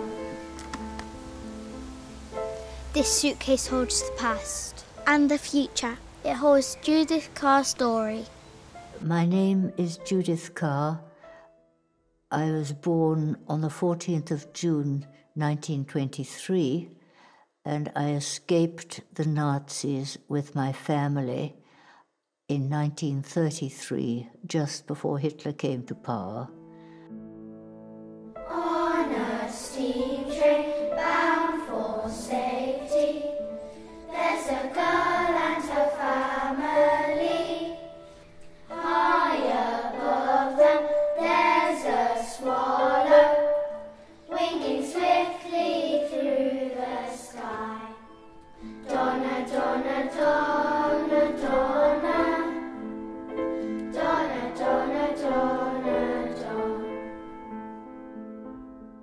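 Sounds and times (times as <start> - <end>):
sustained instrumental notes: 0.0 - 8.6
children singing together: 28.4 - 52.9, 53.8 - 57.2.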